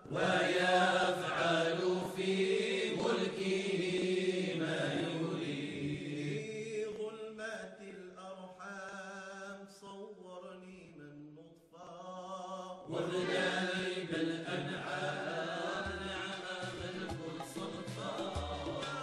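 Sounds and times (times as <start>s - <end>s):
chant-like singing: 0.0s - 19.0s
band playing with a beat: 16.1s - 19.0s.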